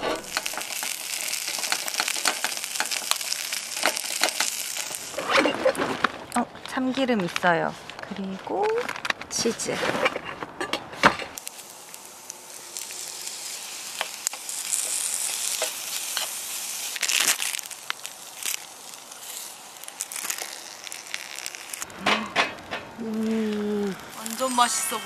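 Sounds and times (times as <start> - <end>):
rice sizzling in a pan: 0.0 - 7.4, 11.4 - 21.9, 23.0 - 25.0.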